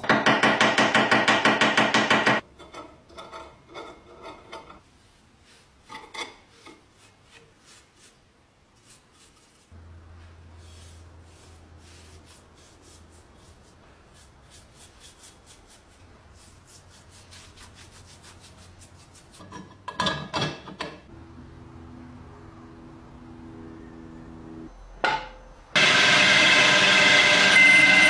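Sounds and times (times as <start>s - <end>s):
brush scrubbing metal: 4.8s - 9.8s, 10.4s - 19.7s.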